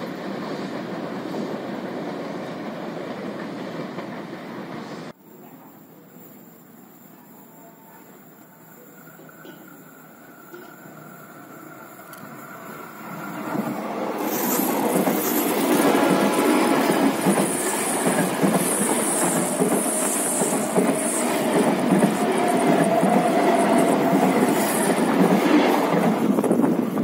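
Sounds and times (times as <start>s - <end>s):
train wheels rumbling on rail: 8.8s - 27.0s.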